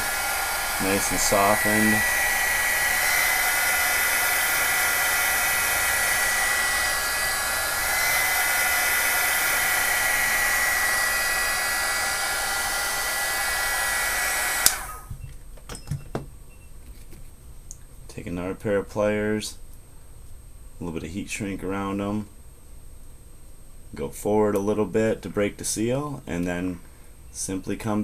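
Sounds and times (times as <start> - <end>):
hot-air blower whining: 0.0 - 15.2.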